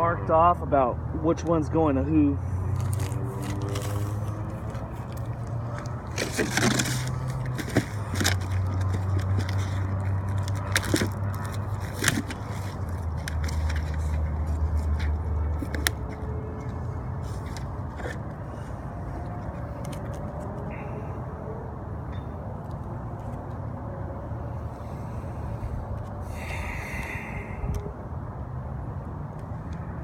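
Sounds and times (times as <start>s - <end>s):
vehicle engines humming: 0.0s - 30.0s
plastic packaging crinkling: 2.7s - 16.1s.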